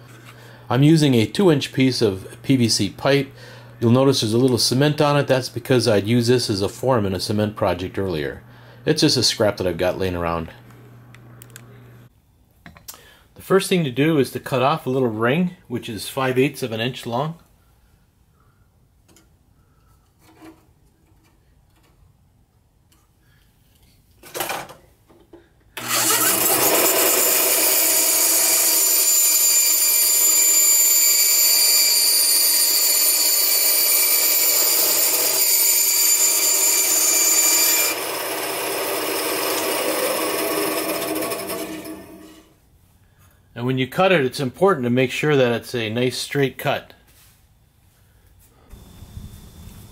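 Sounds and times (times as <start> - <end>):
band saw cutting pipe: 25.8 - 42.5.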